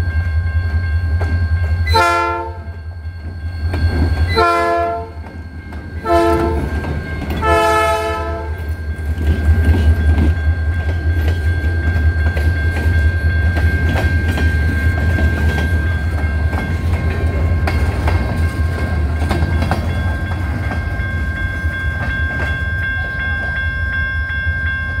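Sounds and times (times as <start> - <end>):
crossing warning bell: 0.0 - 25.0
freight train rumbling by: 0.0 - 25.0
wheels clicking over rail joints: 8.4 - 23.6.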